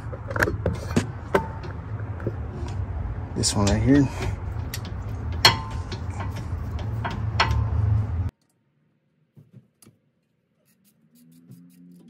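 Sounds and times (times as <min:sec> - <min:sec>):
low steady hum: 0:00.0 - 0:08.3
ratchet wrench clicking: 0:03.4 - 0:08.1.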